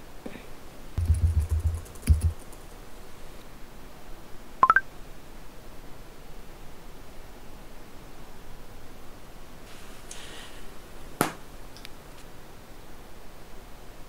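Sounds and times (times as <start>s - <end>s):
laptop keyboard typing: 1.0s - 2.8s
phone notification rising beeps: 4.6s - 4.8s.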